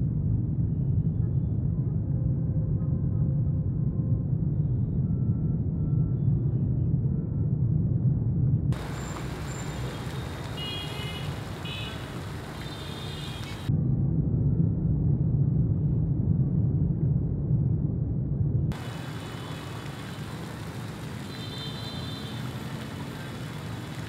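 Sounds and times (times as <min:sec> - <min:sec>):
faint high-pitched market calls: 0:08.8 - 0:13.7.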